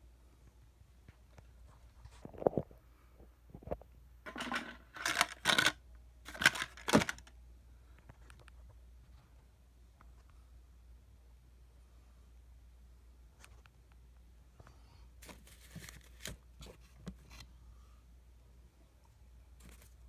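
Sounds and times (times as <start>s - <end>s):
rustling and clatter: 3.6s - 5.7s.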